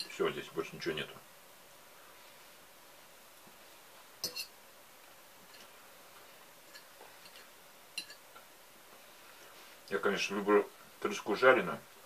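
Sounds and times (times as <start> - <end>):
fork clinking on ceramic plate: 4.2 - 4.5, 8.0 - 8.2.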